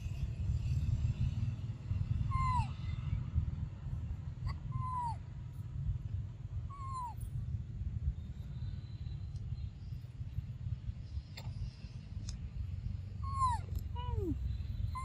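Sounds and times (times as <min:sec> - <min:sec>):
steady low rumble: 0:00.0 - 0:15.0
baby monkey high-pitched calls: 0:02.2 - 0:02.9, 0:04.4 - 0:05.2, 0:06.7 - 0:07.2, 0:13.2 - 0:15.0.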